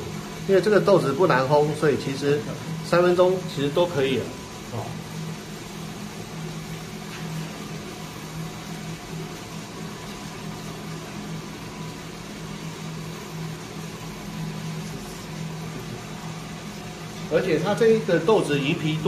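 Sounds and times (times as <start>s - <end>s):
motor and fan hum: 0.0s - 19.0s.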